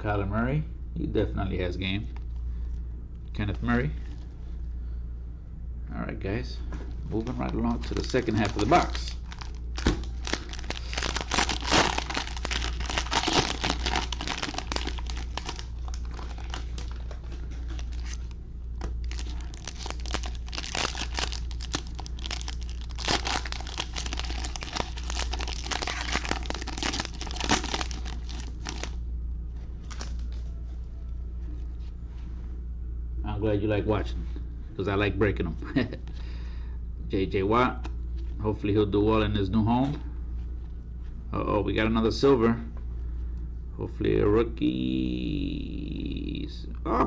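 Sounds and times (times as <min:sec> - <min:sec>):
steady low hum: 0:00.0 - 0:47.0
cellophane wrapper crinkling: 0:07.2 - 0:29.0, 0:29.8 - 0:30.5.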